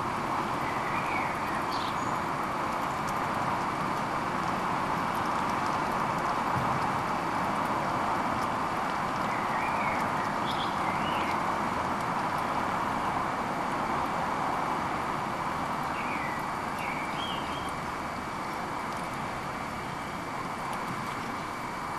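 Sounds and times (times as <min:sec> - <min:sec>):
steady rushing noise: 0:00.0 - 0:21.9
bird chirps: 0:09.3 - 0:11.3, 0:15.9 - 0:17.7.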